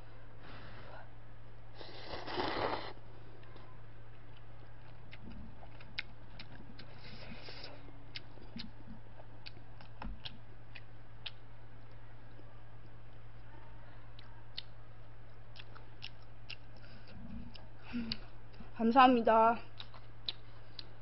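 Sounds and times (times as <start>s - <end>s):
chewing: 1.4s - 18.8s, 19.7s - 21.0s
noodle slurp: 1.8s - 3.0s.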